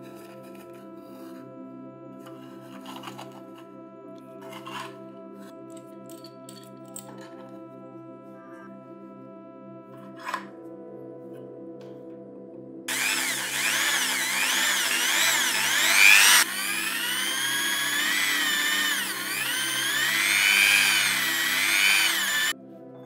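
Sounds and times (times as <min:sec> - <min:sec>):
background music: 0:00.0 - 0:23.0
electric drill whining: 0:12.9 - 0:22.6.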